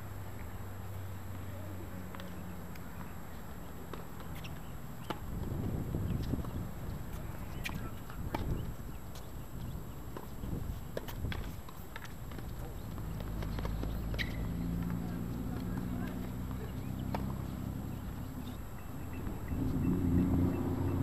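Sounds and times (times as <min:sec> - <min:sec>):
tennis balls struck and bouncing: 0:01.3 - 0:21.0.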